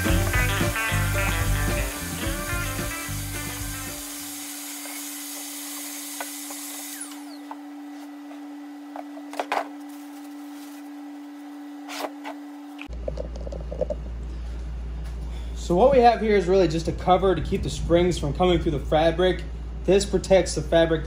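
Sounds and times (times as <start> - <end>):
shop vacuum running: 0.0 - 12.9.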